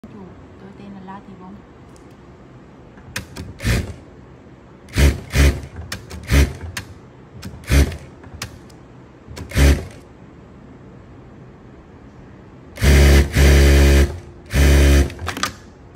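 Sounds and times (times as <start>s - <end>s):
sewing machine stitching: 4.9s - 6.9s, 7.5s - 8.1s, 9.4s - 10.0s, 12.8s - 15.3s.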